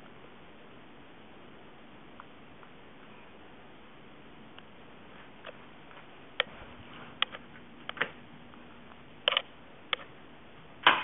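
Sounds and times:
ceiling fan running: 0.0s - 11.0s
sharp clicks and knocks: 8.9s - 10.1s.

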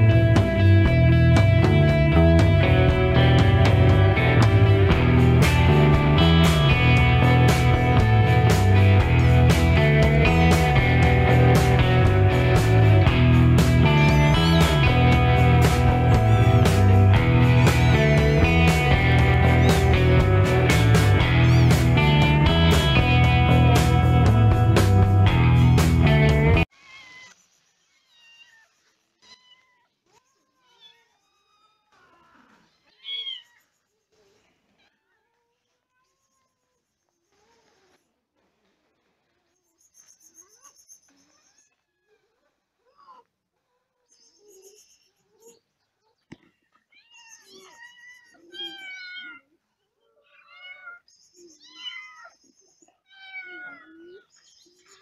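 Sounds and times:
kittens meowing: 6.2s - 24.4s, 26.7s - 33.8s, 40.3s - 43.3s, 46.5s - 55.0s.

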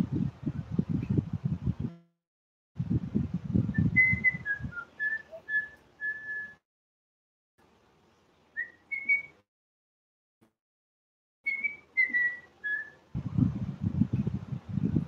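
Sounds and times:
low rumbling noise: 2.8s - 4.8s, 13.2s - 15.0s
woman whistling a tune: 3.8s - 6.6s, 8.6s - 9.4s, 11.5s - 13.0s.

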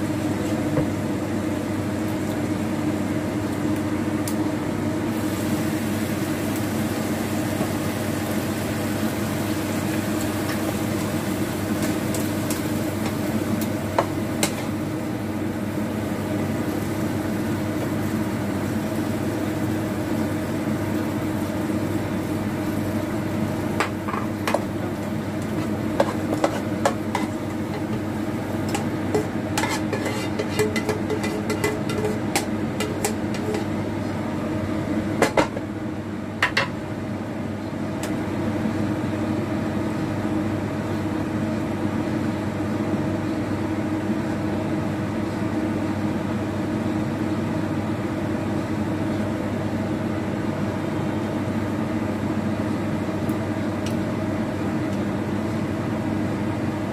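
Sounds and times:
steady mechanical hum: 0.0s - 56.9s
utensil scraping frying pan: 11.8s - 14.8s, 23.8s - 33.8s.

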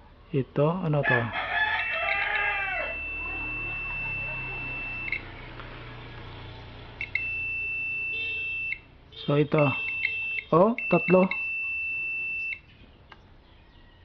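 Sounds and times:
rooster crowing: 1.0s - 4.6s, 13.6s - 14.0s
multimeter continuity beep: 2.1s - 5.4s, 7.0s - 8.9s, 9.5s - 12.7s.

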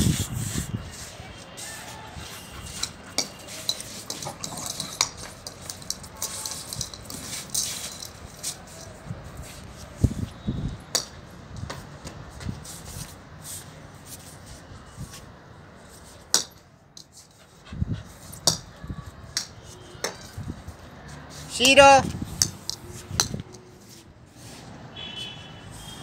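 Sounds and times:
clicks and taps on tiled floor: 2.8s - 9.0s.

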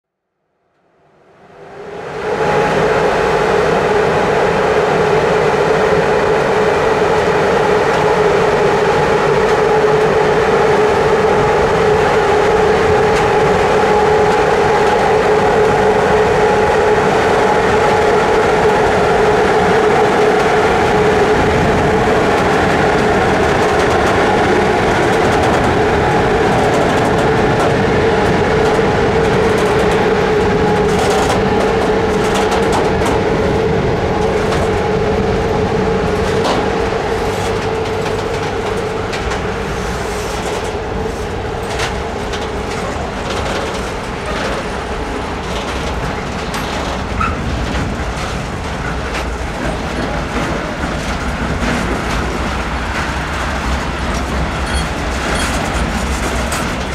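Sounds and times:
train wheels rumbling on rail: 0.8s - 56.9s
wheels clacking over rail joints: 18.2s - 56.9s.

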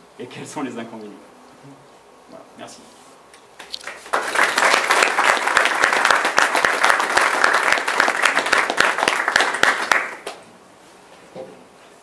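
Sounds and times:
audience applauding: 3.8s - 10.4s.

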